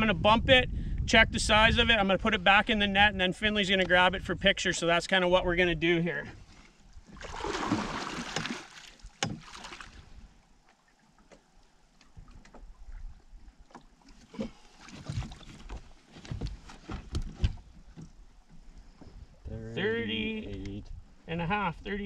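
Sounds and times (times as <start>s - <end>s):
water splashing: 7.0s - 16.0s
fish knocking and thumping: 7.2s - 9.9s, 13.7s - 18.2s.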